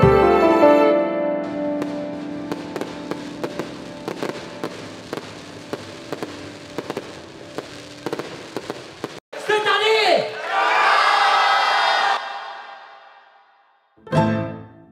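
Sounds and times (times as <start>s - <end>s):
music: 0.0s - 7.4s, 14.0s - 14.9s
fireworks cracking and popping: 1.8s - 9.2s.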